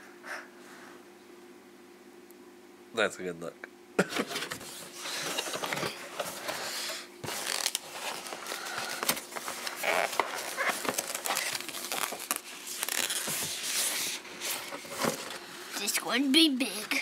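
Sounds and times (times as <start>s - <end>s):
cardboard and plastic rustling: 4.1s - 16.0s.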